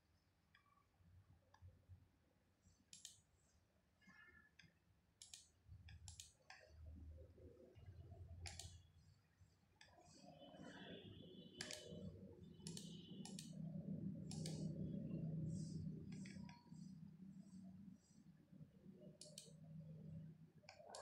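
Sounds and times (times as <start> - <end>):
faint low rumble: 10.4 - 20.6
laptop clicks: 11.6 - 12.0.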